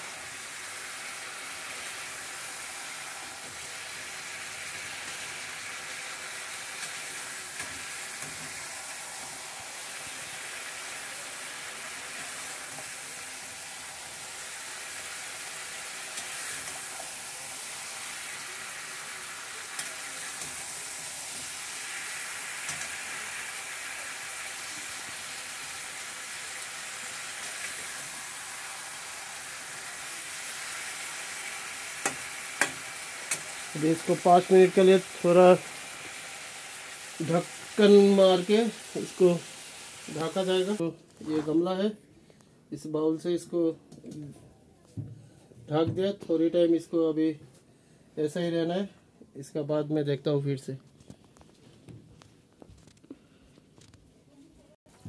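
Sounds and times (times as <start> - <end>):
vegetables sizzling in a pan: 0.0 - 41.6.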